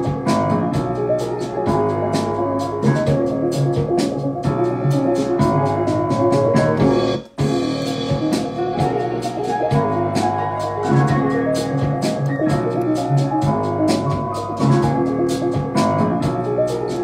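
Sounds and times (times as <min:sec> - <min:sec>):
bass line: 0:00.0 - 0:17.0
keyboard chords: 0:00.0 - 0:17.0
trap beat: 0:00.0 - 0:17.0
hi-hat ticks: 0:09.2 - 0:17.0.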